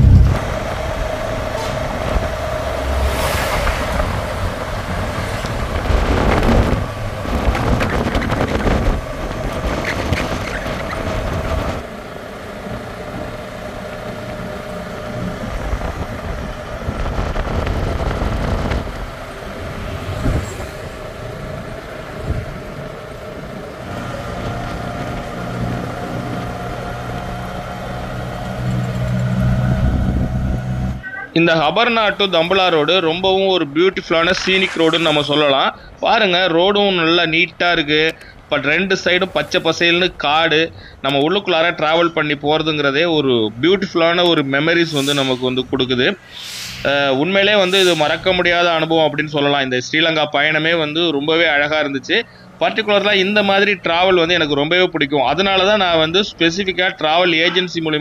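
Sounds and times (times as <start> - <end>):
steady low hum: 0.0 - 1.4
auto-rickshaw engine running: 0.0 - 33.8, 46.9 - 58.0
road and wind noise: 0.0 - 58.0.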